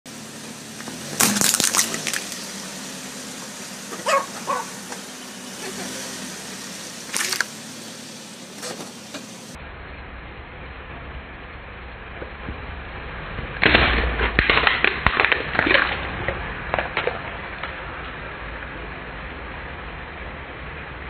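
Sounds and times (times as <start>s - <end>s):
plastic tubs cracking and bursting: 1.2s - 2.4s, 7.1s - 7.5s, 13.6s - 18.2s.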